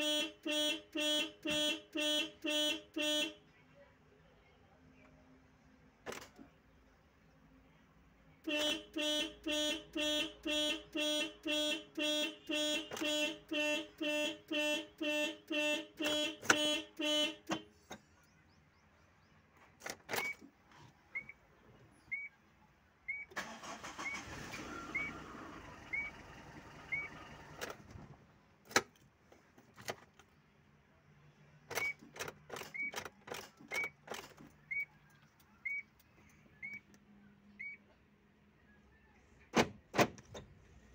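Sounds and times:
car alarm beeping: 0:00.0 - 0:03.4, 0:08.4 - 0:19.3, 0:20.1 - 0:20.5, 0:21.1 - 0:27.8, 0:31.7 - 0:38.0.

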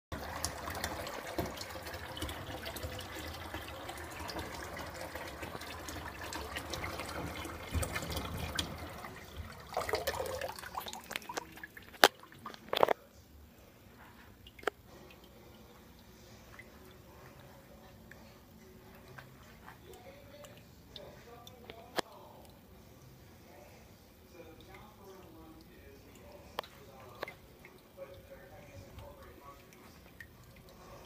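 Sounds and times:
tap water splashing into sink: 0:00.2 - 0:12.9
faint water drips: 0:00.2 - 0:31.0.

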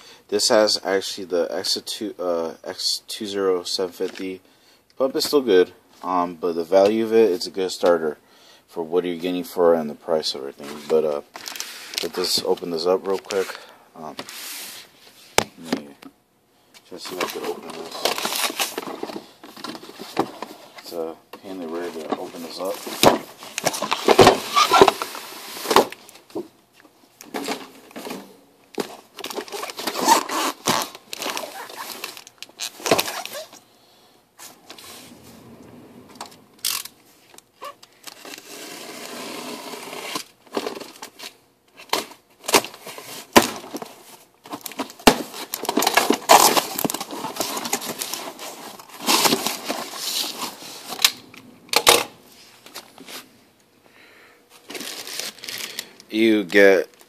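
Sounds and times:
cardboard scraping and rustling: 0:21.6 - 0:25.9, 0:42.0 - 0:51.0.

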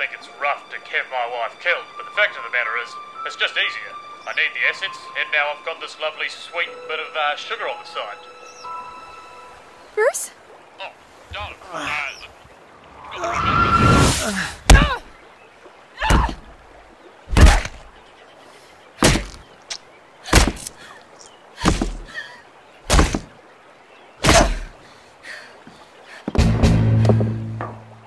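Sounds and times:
heavy blunt thuds: 0:19.0 - 0:19.4, 0:20.3 - 0:20.7, 0:21.6 - 0:22.1, 0:22.9 - 0:23.3, 0:24.2 - 0:24.7, 0:26.3 - 0:28.0.

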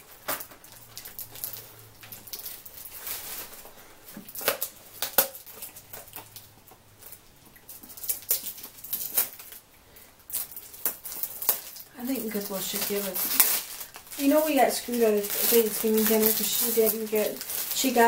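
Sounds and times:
cellophane wrapper crinkling: 0:00.0 - 0:18.0.

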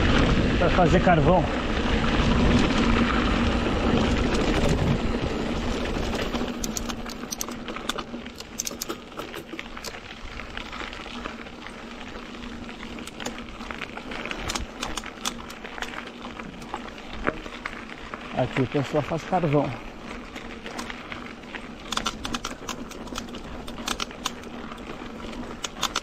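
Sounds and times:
bike rattling: 0:00.0 - 0:26.0
bike tyres crunching on gravel: 0:00.0 - 0:26.0
wind on microphone: 0:04.2 - 0:06.6.

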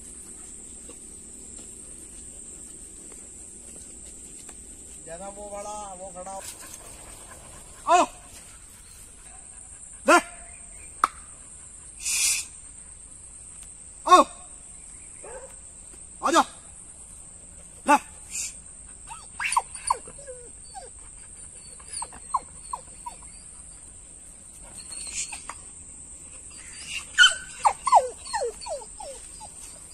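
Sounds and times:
dogs barking and yelping: 0:06.2 - 0:12.0, 0:15.2 - 0:15.6, 0:18.4 - 0:29.9.

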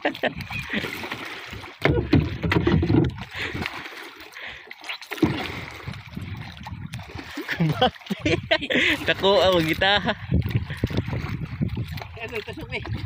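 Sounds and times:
water sloshing against canoe hull: 0:00.0 - 0:13.0.

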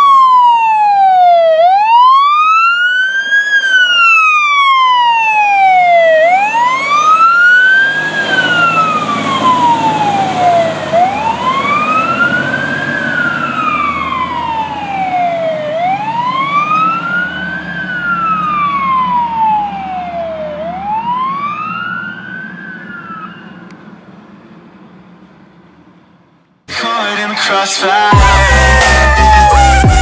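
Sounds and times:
fire engine siren wailing: 0:00.0 - 0:25.6, 0:26.8 - 0:30.0
truck engine running: 0:03.1 - 0:23.0, 0:28.1 - 0:30.0.

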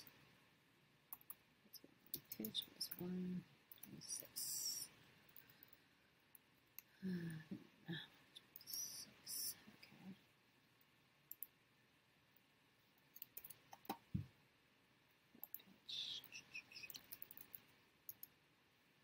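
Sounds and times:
keyboard typing and mouse clicks: 0:01.1 - 0:03.1, 0:11.3 - 0:11.6, 0:13.0 - 0:14.3, 0:15.4 - 0:15.7, 0:16.3 - 0:18.4.

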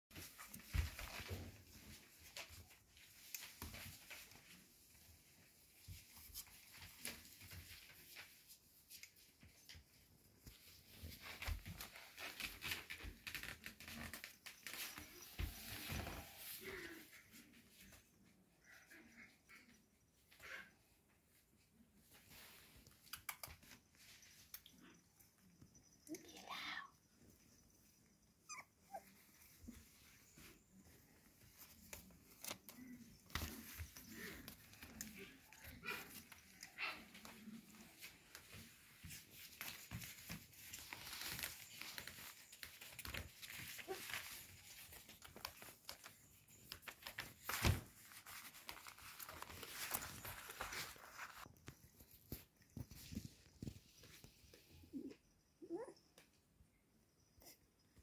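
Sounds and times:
puppies rustling and scratching: 0:00.1 - 0:56.4
puppy squeaks: 0:28.4 - 0:29.6.

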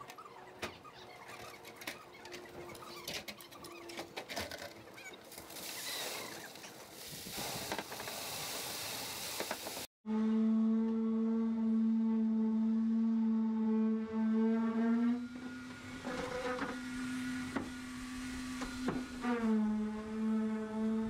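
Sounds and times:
faint squeaks: 0:00.0 - 0:06.5.

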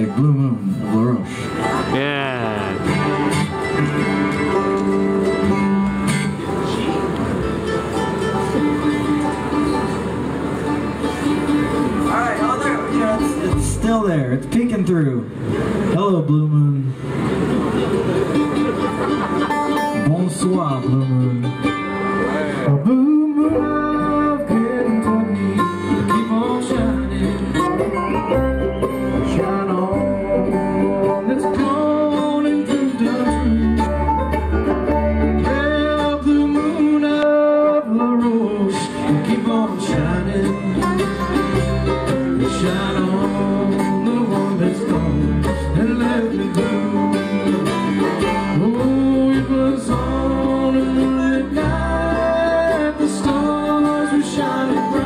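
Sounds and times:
person singing: 0:00.0 - 0:03.2, 0:22.3 - 0:55.0
banjo: 0:00.0 - 0:16.1, 0:17.0 - 0:55.0
acoustic guitar: 0:00.0 - 0:55.0
mandolin: 0:00.0 - 0:55.0
upright bass pulsing: 0:00.0 - 0:55.0.

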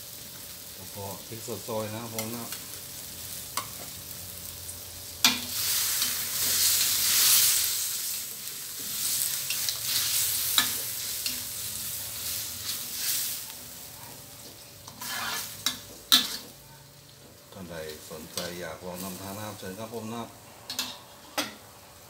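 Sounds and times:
food sizzling in oil: 0:00.0 - 0:22.0
spatula scraping and knocking a wok: 0:05.2 - 0:07.4, 0:14.1 - 0:16.6.

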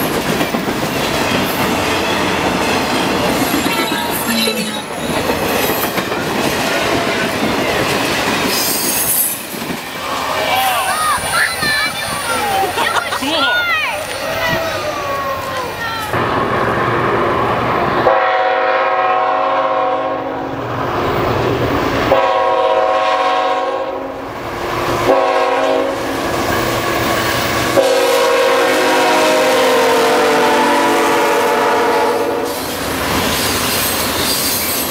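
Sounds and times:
train rumbling on rails: 0:00.0 - 0:34.9
locomotive air horn chord: 0:18.0 - 0:20.5, 0:22.1 - 0:24.2, 0:25.0 - 0:26.1, 0:27.8 - 0:32.6.

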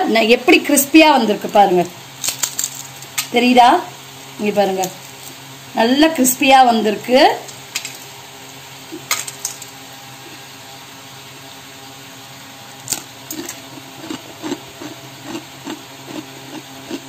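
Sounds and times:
steady low hum: 0:00.0 - 0:17.0
crackers snapping and crunching: 0:02.2 - 0:03.4, 0:07.5 - 0:08.2, 0:09.0 - 0:09.8, 0:12.8 - 0:17.0.

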